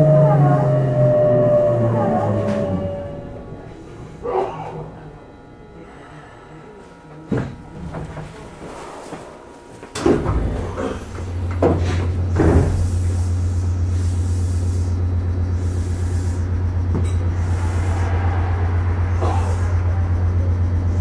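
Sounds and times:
train equipment low hum: 0:00.0 - 0:21.0
hiss: 0:12.6 - 0:16.5, 0:17.3 - 0:18.1.

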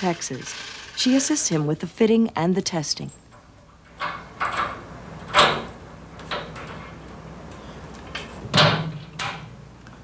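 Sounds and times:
hand tools clanking on metal: 0:03.0 - 0:09.5.

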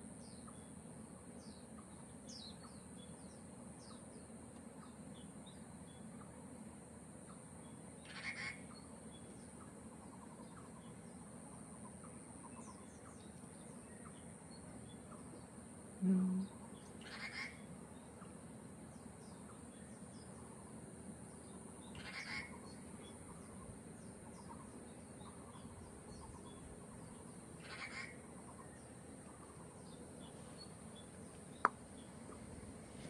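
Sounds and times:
steady high hiss: 0:00.0 - 0:33.0
small bird chirps: 0:07.2 - 0:20.5, 0:21.3 - 0:32.5
rough bird call: 0:08.0 - 0:08.7, 0:17.0 - 0:17.7, 0:21.9 - 0:22.7, 0:27.6 - 0:28.2.

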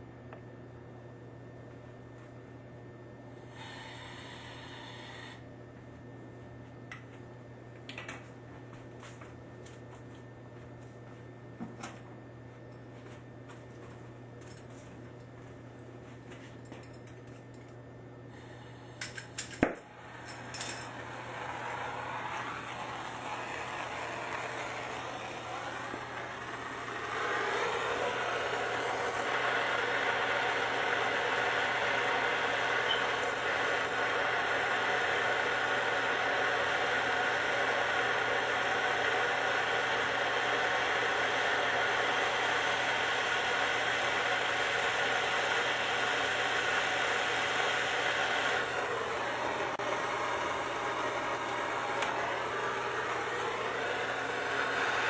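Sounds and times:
gas torch flame hissing: 0:03.4 - 0:05.5, 0:18.3 - 0:55.0
torch igniter clicks: 0:51.4 - 0:52.3.

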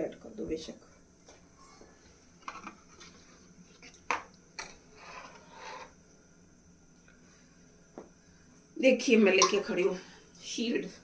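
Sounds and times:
soft scraping rustle: 0:04.9 - 0:06.0.

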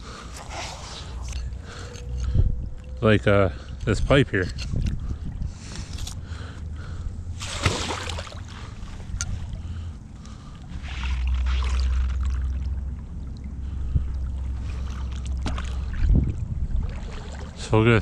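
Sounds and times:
steady low rumble: 0:00.0 - 0:18.0
river water sloshing and splashing: 0:07.3 - 0:18.0
sharp splash: 0:07.4 - 0:08.6.

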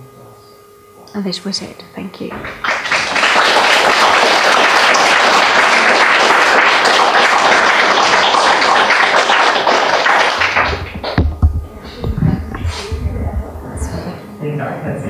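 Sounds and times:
audience applauding: 0:02.3 - 0:12.9.

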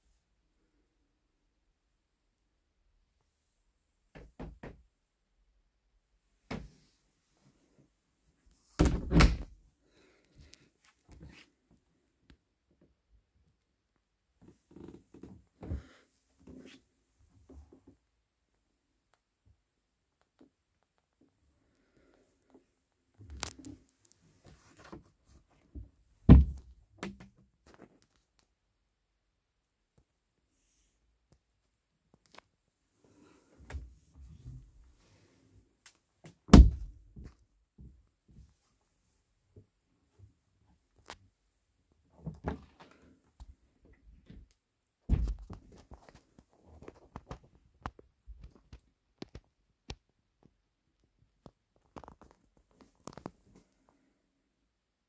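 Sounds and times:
faint clicks and taps: 0:45.3 - 0:54.0.

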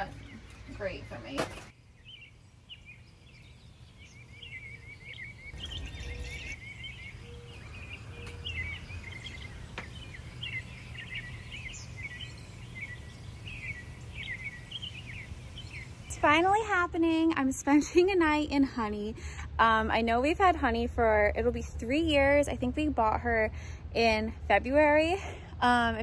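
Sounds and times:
songbirds chirping: 0:00.0 - 0:18.0.

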